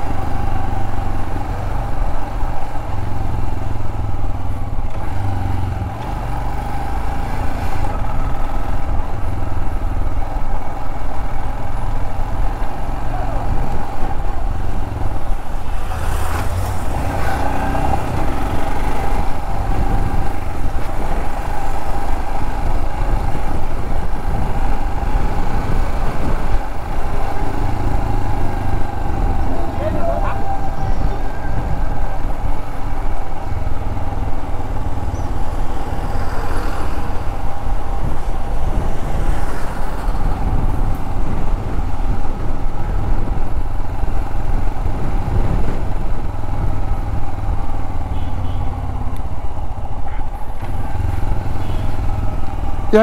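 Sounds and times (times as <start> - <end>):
wind rumble on microphone: 7.7 - 47.8.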